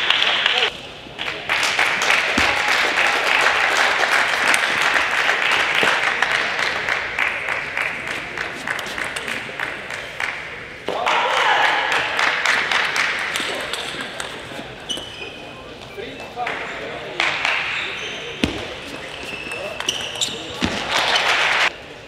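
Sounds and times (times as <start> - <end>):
audience applause: 1.4 - 8.2.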